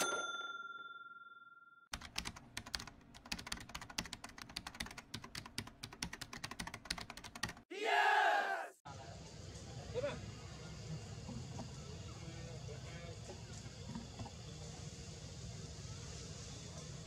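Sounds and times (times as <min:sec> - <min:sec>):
bell-like ding: 0:00.0 - 0:01.8
rapid keyboard typing clicks: 0:01.9 - 0:07.6.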